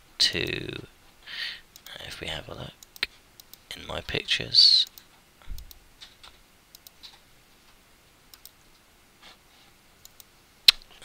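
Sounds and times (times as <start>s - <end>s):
computer mouse clicking: 2.8s - 3.6s, 4.8s - 7.2s, 8.3s - 8.6s, 10.0s - 10.8s.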